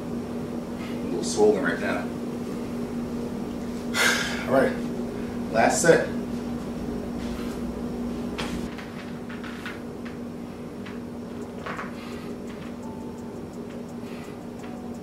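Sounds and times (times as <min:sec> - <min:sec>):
steady low hum: 0:00.0 - 0:15.0
squat machine noises: 0:10.5 - 0:15.0.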